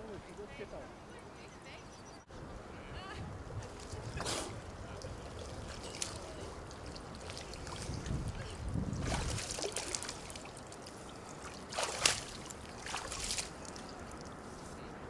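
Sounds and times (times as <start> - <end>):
water sloshing and splashing: 3.6 - 14.6
water dripping: 4.6 - 14.4.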